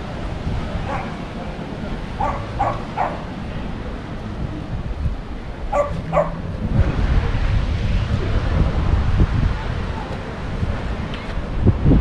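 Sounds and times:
wind rumble on microphone: 0.0s - 12.0s
dog barking: 0.8s - 1.2s, 2.2s - 3.3s, 5.7s - 6.4s.

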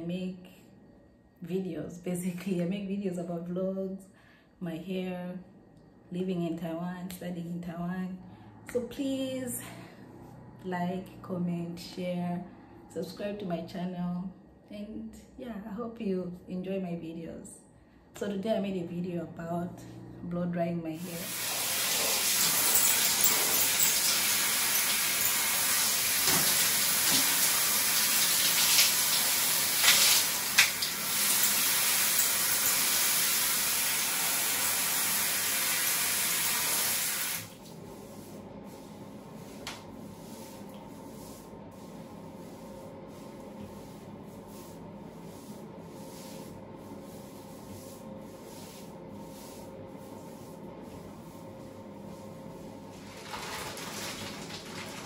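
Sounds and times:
shower water spraying on hair: 21.0s - 37.8s, 52.9s - 55.0s.

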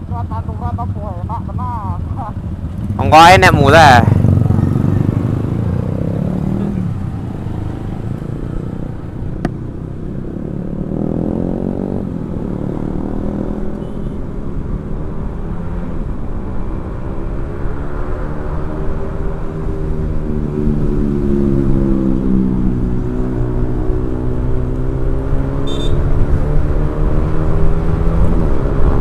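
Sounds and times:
motorbike engine revving up: 2.8s - 8.9s, 10.2s - 13.8s.

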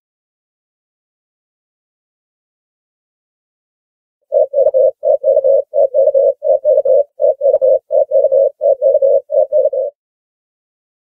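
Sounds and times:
dove cooing: 4.3s - 10.0s.

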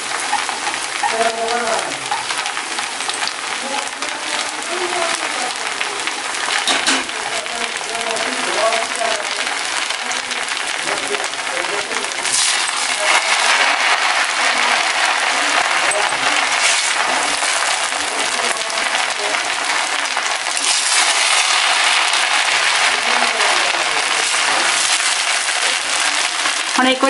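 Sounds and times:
rice sizzling in a pan: 0.0s - 27.0s
metal spoon scraping a pan: 0.1s - 1.3s, 12.2s - 26.7s.

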